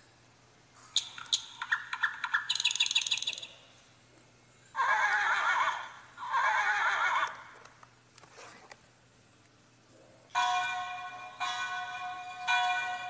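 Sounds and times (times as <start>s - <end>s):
electronic wavering calls: 1.0s - 3.6s, 4.8s - 7.6s.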